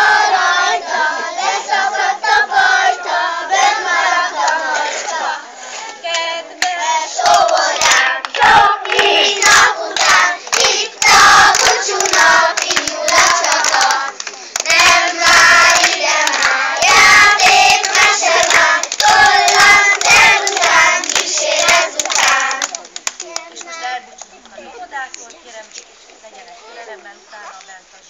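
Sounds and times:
children singing: 0.0s - 5.4s, 7.1s - 22.7s
hands clapping: 6.1s - 25.2s.

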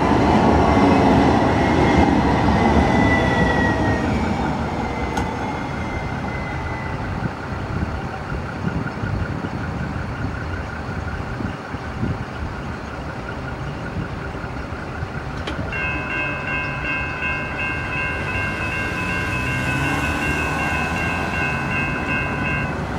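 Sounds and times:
traffic: 0.0s - 22.9s
train rumble: 0.0s - 22.9s
crossing bells ringing: 12.3s - 22.9s.

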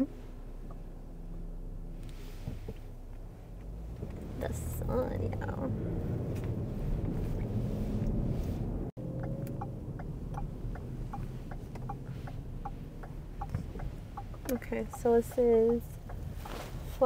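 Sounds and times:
car cabin rumble: 0.0s - 17.0s
turn signal ticking: 9.0s - 17.0s.

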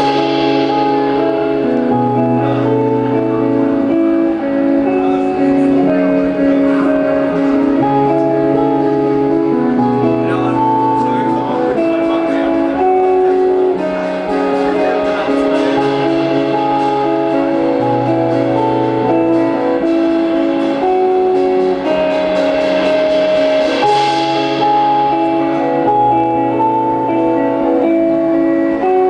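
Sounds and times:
electric guitars playing: 0.0s - 29.0s.

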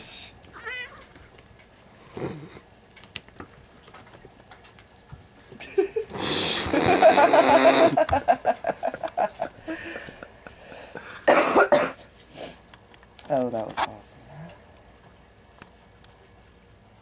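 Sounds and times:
cat yowling: 0.6s - 1.0s
cats scuffling: 2.8s - 6.1s
cat hissing: 6.2s - 7.8s.

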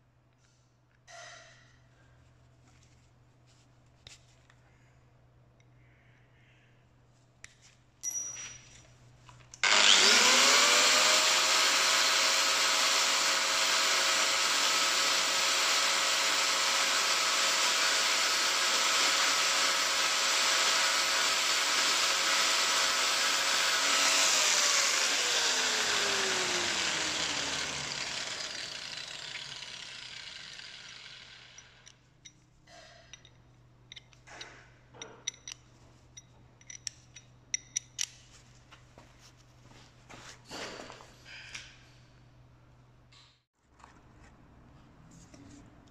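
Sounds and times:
angle grinder cutting metal: 9.6s - 31.9s.

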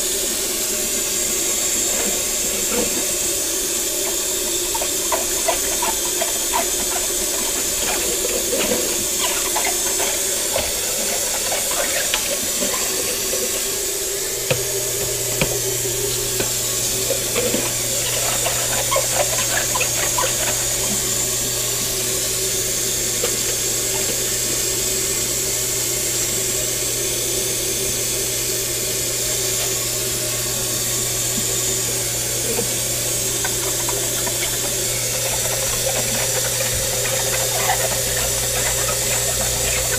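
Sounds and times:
tap running into steel sink: 14.4s - 15.7s.

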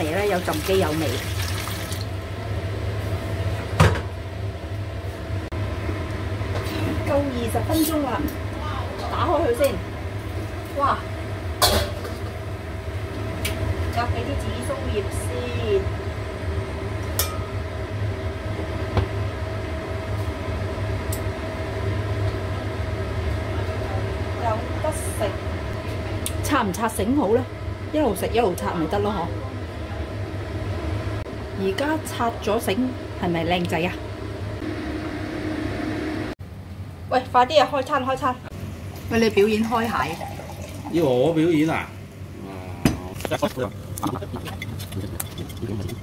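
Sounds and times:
water pouring into steel basin: 0.1s - 2.1s, 39.5s - 41.1s
steady low hum: 2.0s - 46.0s.

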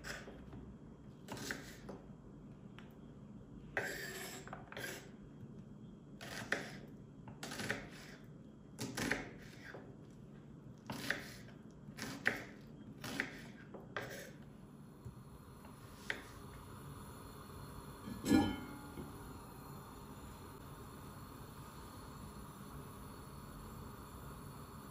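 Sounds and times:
knife chopping onion on board: 1.3s - 1.9s, 3.8s - 5.0s, 6.2s - 8.2s, 8.8s - 9.8s, 10.9s - 14.4s.

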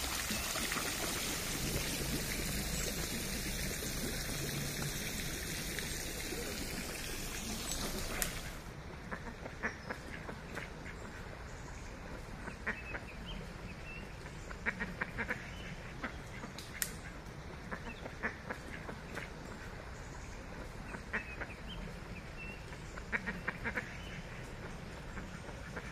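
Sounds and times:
ducks quacking: 22.7s - 25.9s.

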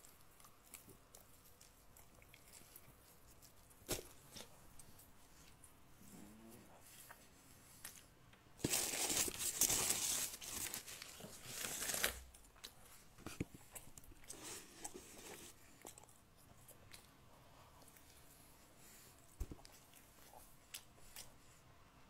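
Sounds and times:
paper crumpling: 8.6s - 12.4s.

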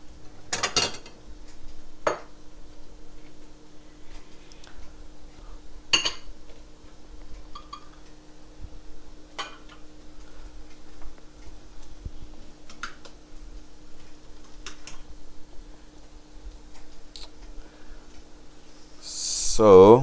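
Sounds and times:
glass dishes clinking on countertop: 6.0s - 6.3s.

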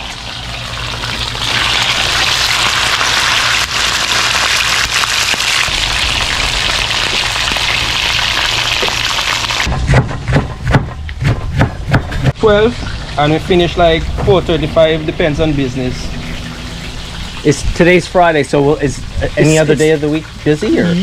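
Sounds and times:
fish sizzling in hot oil: 0.0s - 9.7s.

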